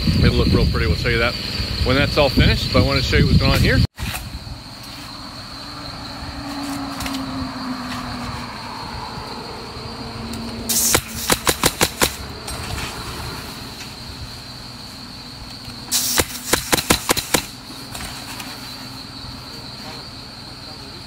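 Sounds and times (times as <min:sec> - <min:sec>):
crickets droning: 0:00.0 - 0:21.0
pneumatic nailer firing: 0:10.7 - 0:12.9, 0:15.9 - 0:18.4.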